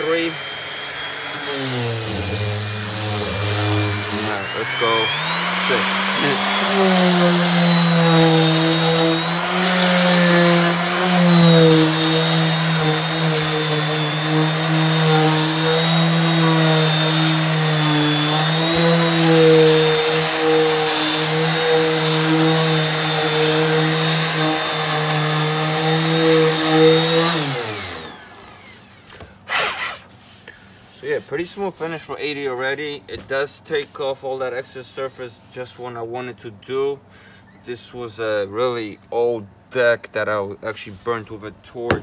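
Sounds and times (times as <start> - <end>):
orbit sander running: 0.0 - 29.1.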